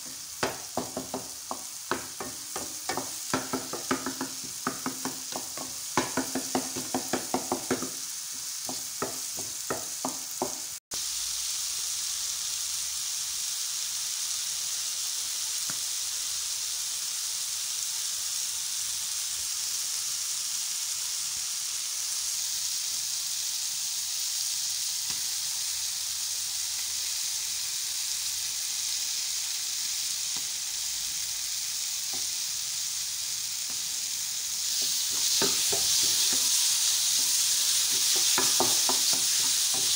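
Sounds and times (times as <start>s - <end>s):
food sizzling in a pan: 0.0s - 39.9s
wooden spoon scraping a pan: 34.7s - 39.9s.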